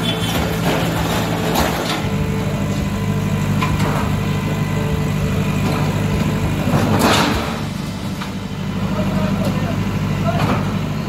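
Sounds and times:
diesel engine running: 0.0s - 11.0s
bucket crashing into shop front: 6.7s - 8.2s.

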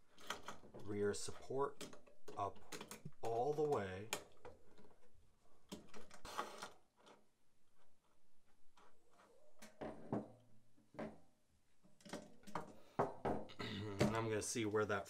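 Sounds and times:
metal clicks and knocks: 0.1s - 7.2s.

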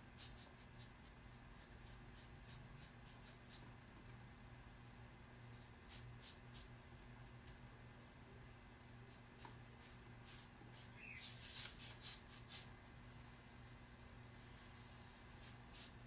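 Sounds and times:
brush swishing on canvas: 0.0s - 3.7s, 5.5s - 6.7s, 9.0s - 12.8s, 13.9s - 16.0s
low steady hum: 0.0s - 16.0s.

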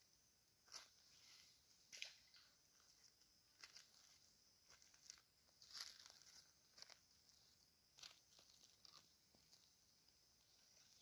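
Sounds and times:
footsteps crunching dry leaves: 3.6s - 9.0s.

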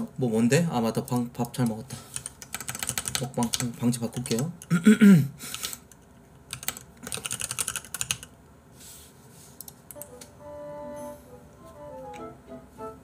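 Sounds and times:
typing on computer keyboard: 1.0s - 4.7s, 5.5s - 8.3s
soft background music: 9.9s - 13.0s.

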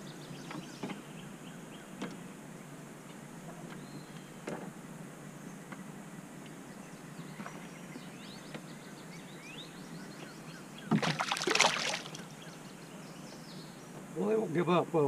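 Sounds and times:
fish splashing at water surface: 10.9s - 12.3s.

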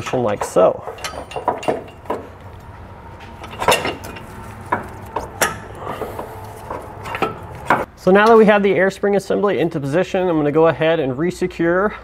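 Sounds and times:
metal clinks and knocks: 0.0s - 8.4s.

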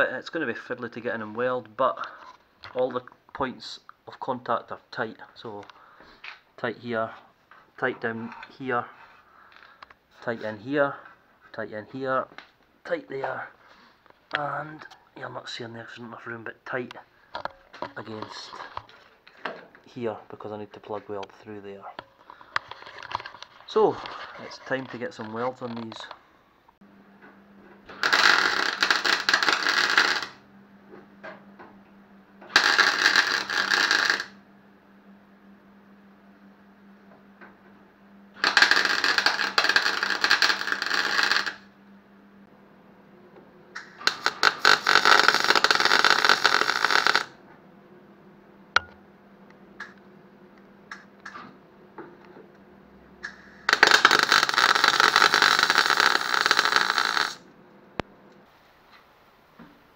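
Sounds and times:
welder arc crackling: 17.8s - 19.0s, 27.9s - 30.4s, 32.5s - 34.4s, 38.4s - 41.7s, 43.8s - 47.4s, 53.2s - 57.4s.

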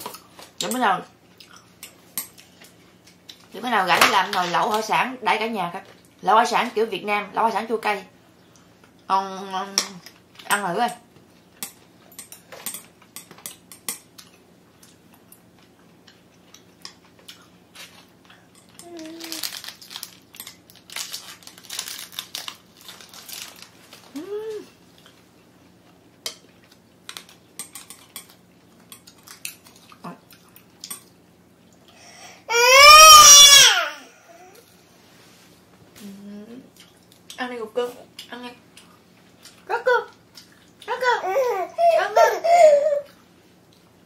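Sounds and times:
chewing: 25.8s - 31.9s.

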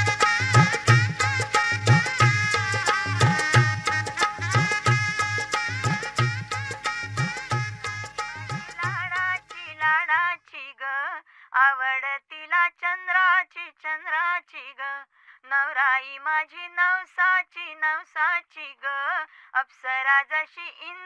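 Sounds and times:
woman singing ornamented phrases: 8.4s - 21.0s.

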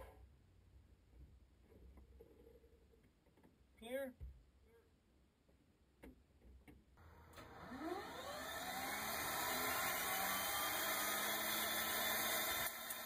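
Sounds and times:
turboprop engine starting whine: 7.0s - 10.7s.

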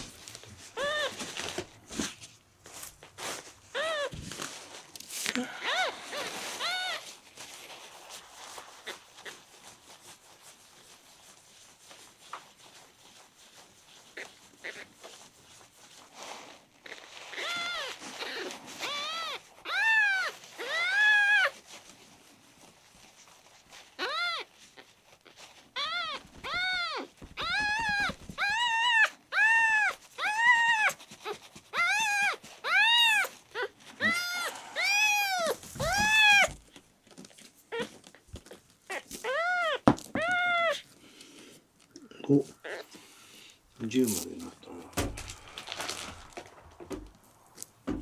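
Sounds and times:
tissue paper crinkling: 0.0s - 41.9s, 42.5s - 48.0s
kitten mewing: 25.8s - 36.6s.

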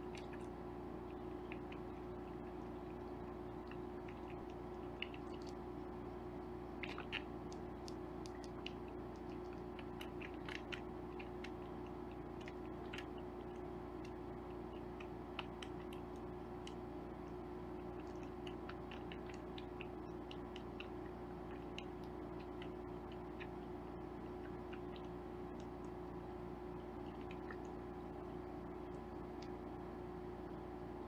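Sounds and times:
steady low hum: 0.0s - 31.0s
kitten sucking from a bottle: 1.3s - 23.6s.

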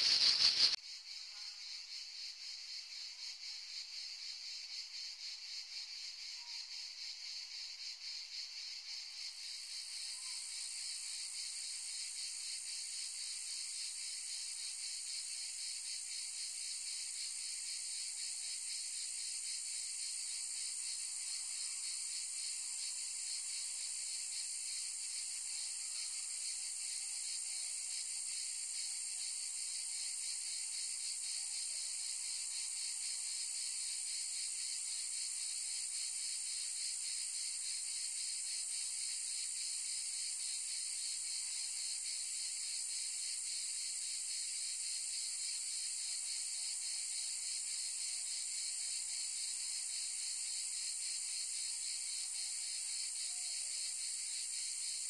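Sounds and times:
cicadas buzzing: 0.0s - 6.6s, 26.4s - 55.0s.

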